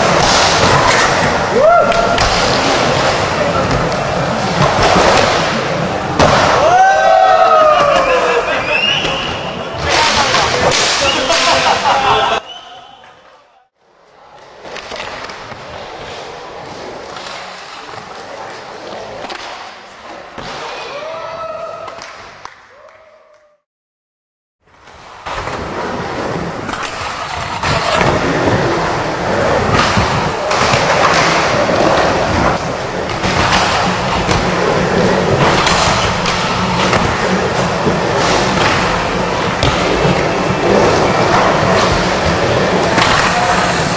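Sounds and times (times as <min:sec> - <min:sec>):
skateboard wheels rumbling: 0:00.0 - 0:08.0, 0:24.8 - 0:43.9.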